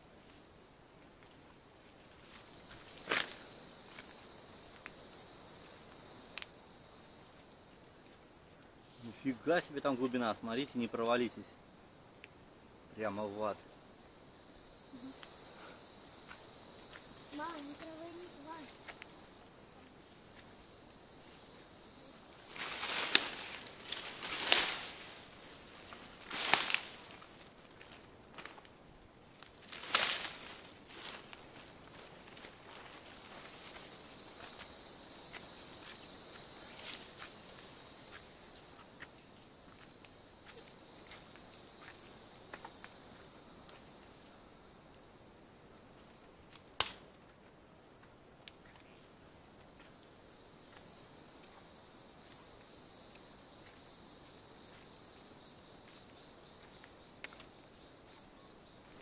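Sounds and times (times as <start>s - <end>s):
high-pitched insect drone: 0.0s - 7.8s, 8.8s - 11.6s, 12.4s - 28.6s, 29.6s - 46.2s, 48.7s - 59.0s
leaves brushing: 1.7s - 8.2s, 14.9s - 43.9s
footsteps crunching on leaf litter: 22.5s - 28.6s
small clicks and snaps: 46.5s - 47.4s.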